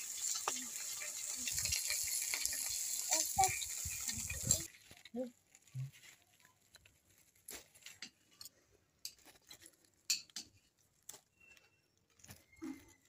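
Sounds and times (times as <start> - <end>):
leaves rustling: 0.0 - 8.3.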